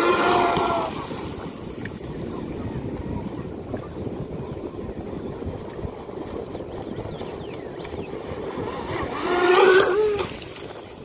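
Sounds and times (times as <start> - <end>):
rc speedboat motor whine: 0.0 - 0.9, 7.3 - 10.4
water lapping: 0.0 - 11.0.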